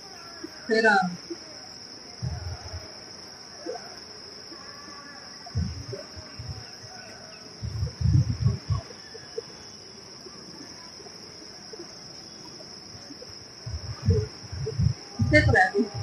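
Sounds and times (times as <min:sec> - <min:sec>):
crickets chirring: 0:00.0 - 0:16.0
short low rumbles: 0:07.6 - 0:08.8, 0:13.7 - 0:16.0.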